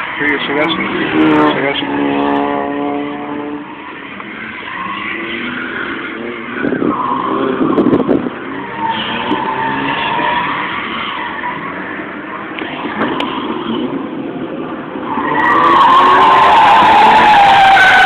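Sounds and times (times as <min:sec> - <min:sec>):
rotary engine revving hard: 0:00.2 - 0:14.2.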